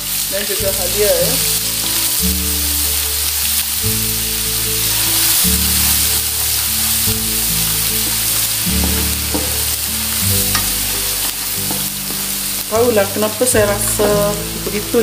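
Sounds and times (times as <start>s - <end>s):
background music low held notes: 0.0s - 15.0s
oil sizzling in a wok: 0.0s - 15.0s
spatula stirring and scraping: 4.6s - 14.8s.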